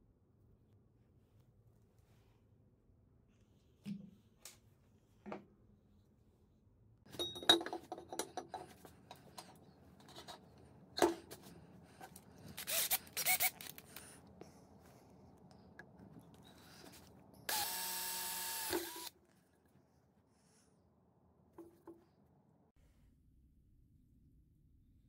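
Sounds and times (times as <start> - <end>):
tools clattering and clicking: 7.1 - 13.9
cordless drill boring metal: 12.6 - 13.7, 17.5 - 19.1.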